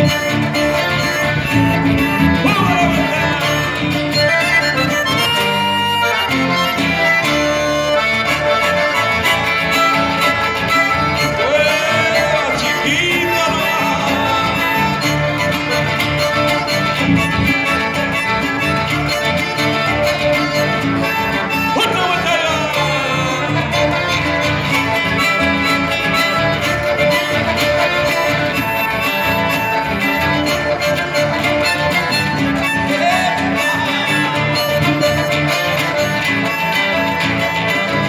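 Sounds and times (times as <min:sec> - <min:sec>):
acoustic guitars strumming: 0:00.0 - 0:38.0
button accordion melody: 0:00.0 - 0:38.0.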